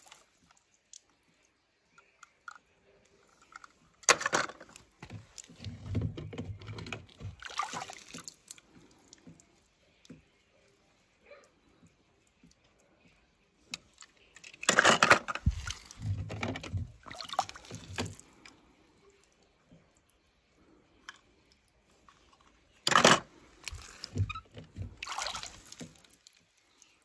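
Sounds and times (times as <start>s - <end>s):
water sloshing in plastic tub: 4.2s - 10.3s, 14.9s - 18.6s, 23.0s - 26.4s.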